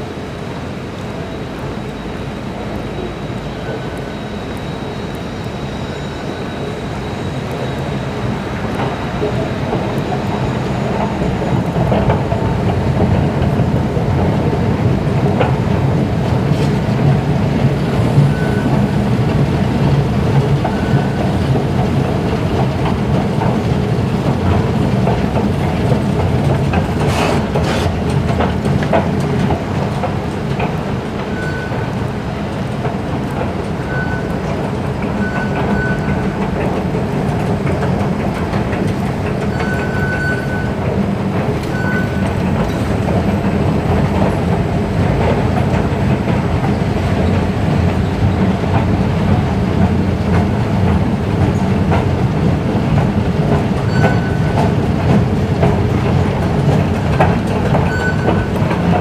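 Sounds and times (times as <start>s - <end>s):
escalator machinery rumbling: 0.0s - 59.0s.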